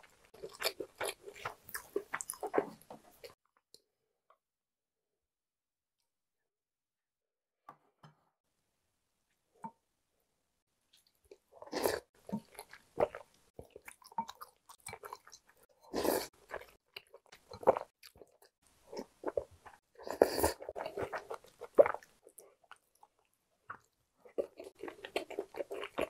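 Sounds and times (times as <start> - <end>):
person chewing food: 0.0 - 3.4, 10.9 - 26.0.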